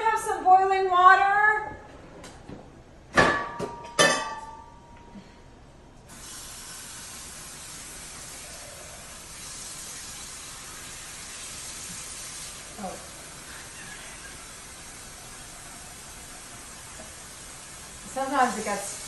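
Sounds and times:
metal cookware clanking: 3.2 - 4.7.

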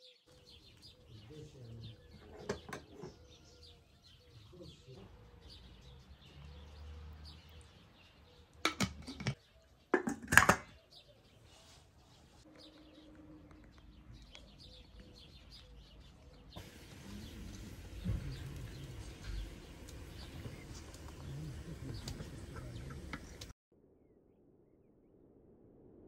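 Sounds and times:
small birds chirping: 0.0 - 23.5
steady hiss: 16.6 - 23.5.

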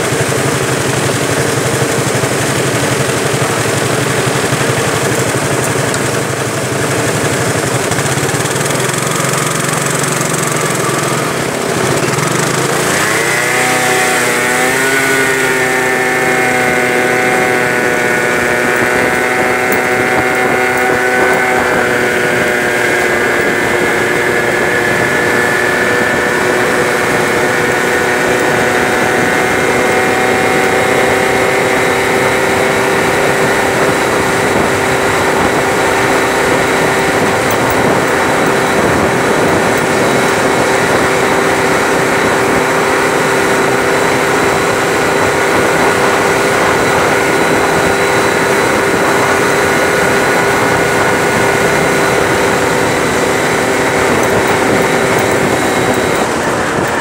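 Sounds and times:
scooter engine: 0.0 - 57.0.

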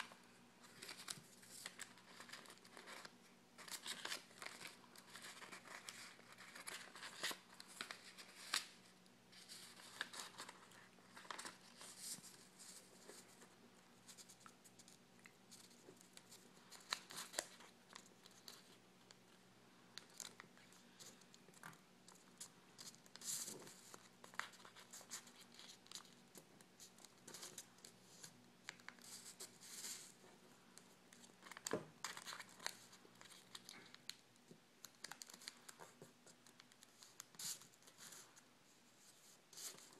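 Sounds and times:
paper rustling and crinkling: 0.0 - 18.8, 20.0 - 34.2.

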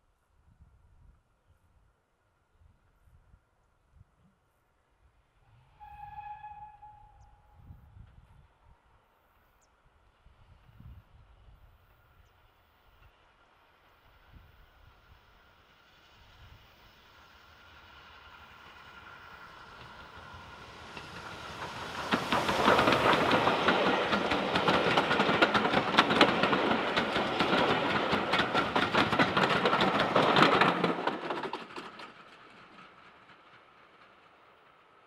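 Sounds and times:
train passing: 10.2 - 35.0
wheels clicking over rail joints: 19.6 - 35.0.

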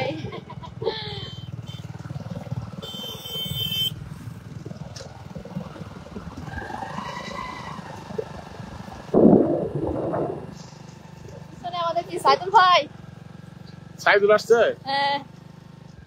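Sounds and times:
motorcycle engine running: 0.0 - 16.0
rising and falling tone: 4.7 - 11.5.

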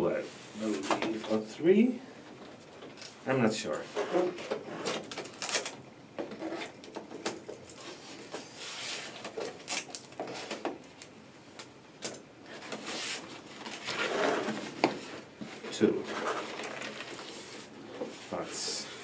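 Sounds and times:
cardboard crackling and rustling: 12.5 - 18.5.

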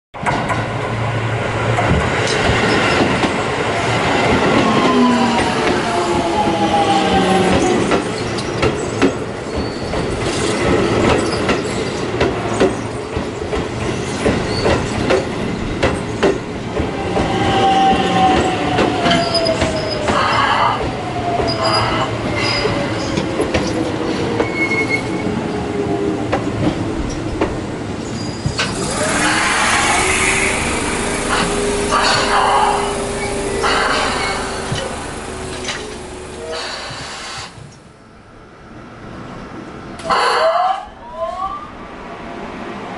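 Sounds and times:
train wheels clicking over rails: 1.6 - 24.6, 25.2 - 37.9
electric train inverter whining: 25.7 - 38.0.

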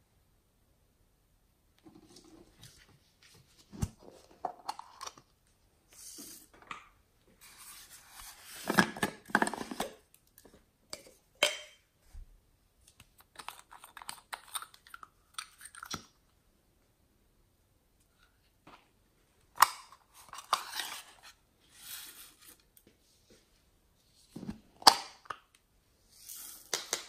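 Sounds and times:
plastic containers clicking and scraping: 8.5 - 11.1.

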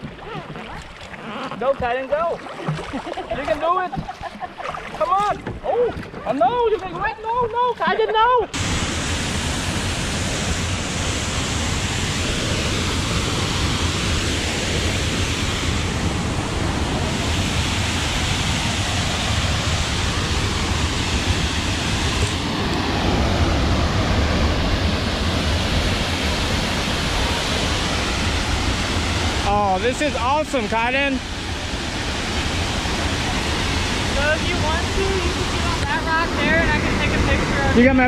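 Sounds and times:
waterfall rushing: 8.4 - 38.0.

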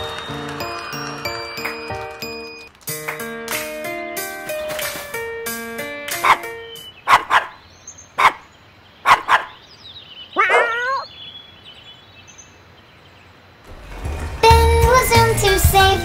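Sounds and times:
cartoon dog barks: 6.1 - 7.6, 8.2 - 9.6, 10.4 - 11.1
yelping call rising and falling: 10.2 - 11.2.

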